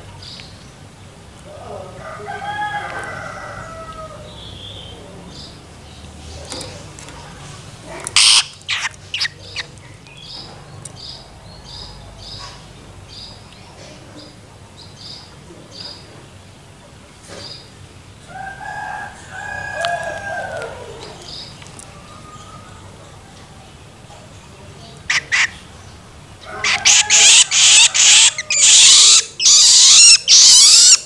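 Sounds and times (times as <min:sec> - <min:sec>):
rooster crowing: 0:01.8 - 0:04.4, 0:18.3 - 0:23.4, 0:26.4 - 0:31.0
bird begging calls: 0:08.1 - 0:09.7, 0:25.0 - 0:31.0.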